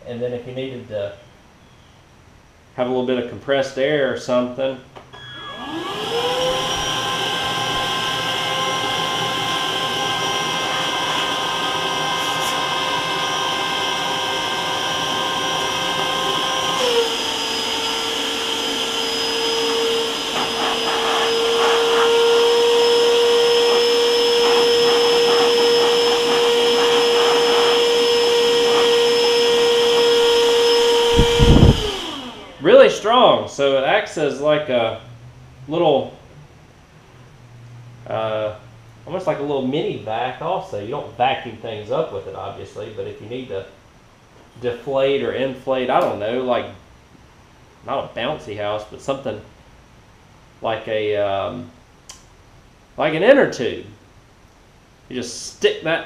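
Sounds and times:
man talking: 0:00.0 - 0:01.2, 0:02.8 - 0:04.9, 0:32.6 - 0:35.0, 0:35.7 - 0:36.2, 0:38.1 - 0:43.8, 0:44.6 - 0:46.8, 0:47.8 - 0:49.5, 0:50.6 - 0:51.7, 0:53.0 - 0:54.0, 0:55.1 - 0:56.0
air compressor fan whining: 0:05.1 - 0:36.2.

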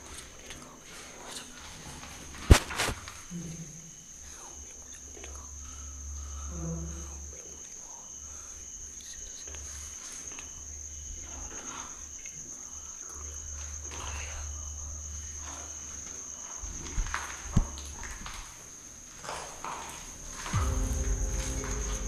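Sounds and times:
cricket trilling: 0:00.0 - 0:22.0
low rumble: 0:20.6 - 0:22.0.

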